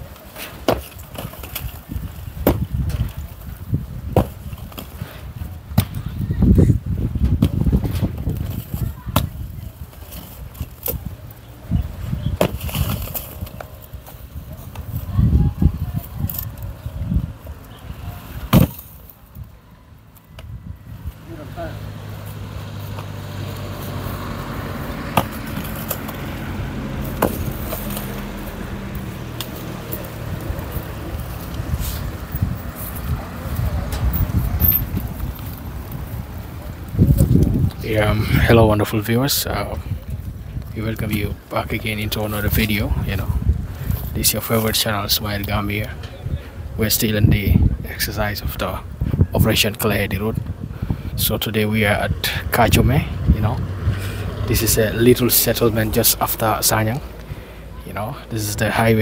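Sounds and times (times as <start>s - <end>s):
engine humming: 0.0s - 47.0s, 47.8s - 59.0s
sledgehammer striking block wall: 2.4s - 2.7s, 18.5s - 18.8s
pickaxe striking concrete: 18.5s - 18.8s.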